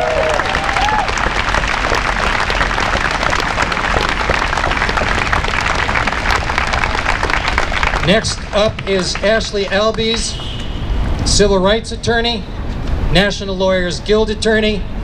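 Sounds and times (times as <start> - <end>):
crowd clapping: 0.0 - 10.7.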